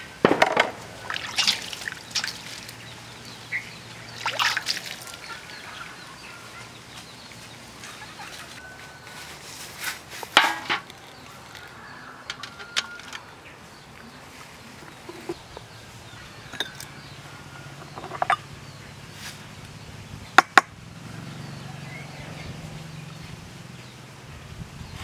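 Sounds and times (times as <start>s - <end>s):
spoon clinking ceramic bowl: 16.5s - 16.9s, 17.9s - 18.4s.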